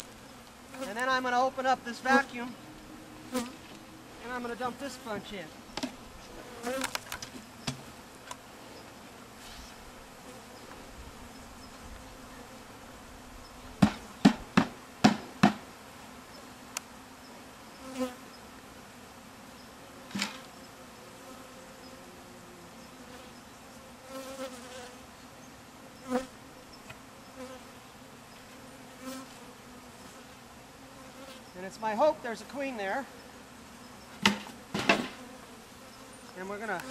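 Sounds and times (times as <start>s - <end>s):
honey bees buzzing: 0.0s - 36.9s
sharp knocks: 13.8s - 15.6s, 34.2s - 35.2s.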